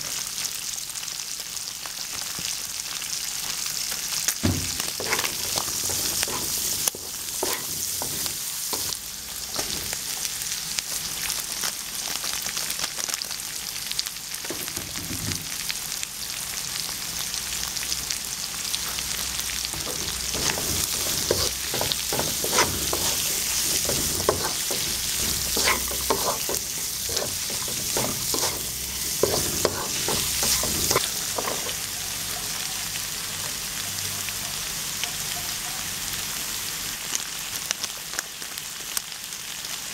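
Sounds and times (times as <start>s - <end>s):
food sizzling in oil: 0.0s - 39.9s
spatula scraping and knocking pan: 4.4s - 10.0s, 19.7s - 31.8s.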